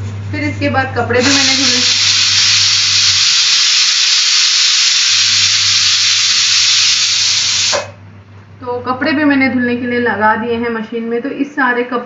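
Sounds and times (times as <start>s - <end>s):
steam hissing: 1.2s - 8.0s.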